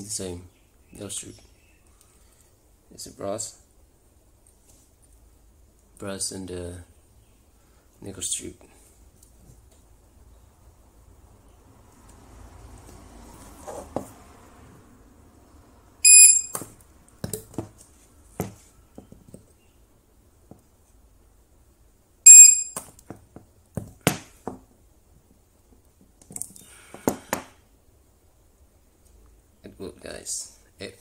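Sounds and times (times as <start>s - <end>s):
short high beep: 16.0s - 16.6s, 22.3s - 22.8s.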